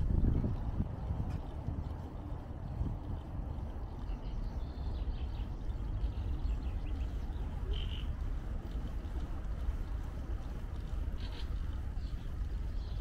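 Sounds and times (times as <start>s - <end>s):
wind buffeting microphone: 0.0s - 13.0s
birds chirping: 0.9s - 13.0s.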